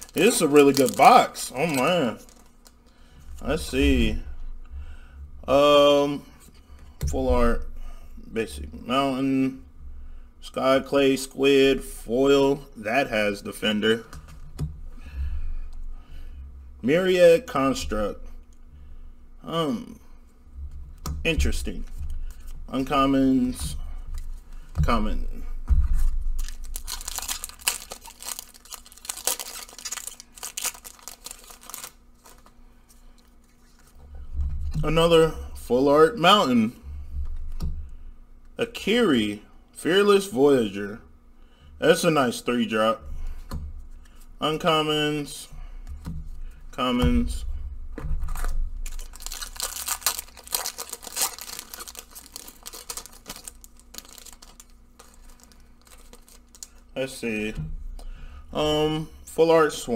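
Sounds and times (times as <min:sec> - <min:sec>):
foil wrapper tearing and crinkling: 0:00.0 - 0:02.8, 0:26.3 - 0:32.5, 0:48.3 - 0:56.9.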